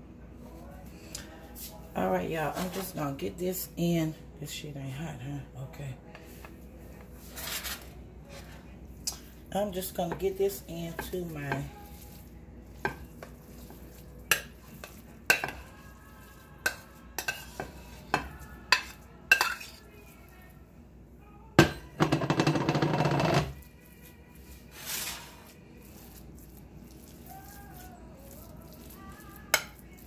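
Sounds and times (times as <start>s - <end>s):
metal spoon clinking on dishes: 14.2s - 15.8s, 16.6s - 19.8s.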